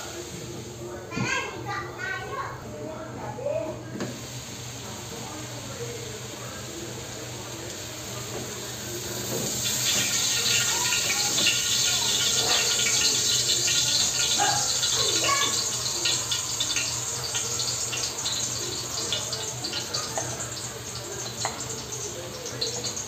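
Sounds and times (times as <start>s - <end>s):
food sizzling in a wok: 0.0s - 1.5s, 4.0s - 23.0s.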